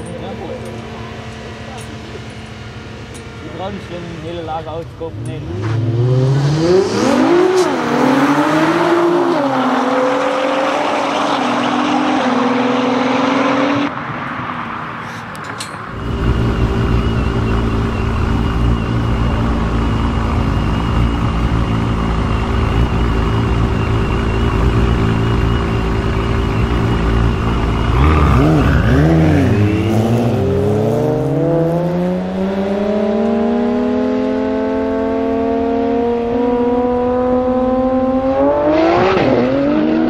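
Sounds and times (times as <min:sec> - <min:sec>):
car engines accelerating hard: 0:00.0 - 0:40.0
car engine idling: 0:15.9 - 0:30.0.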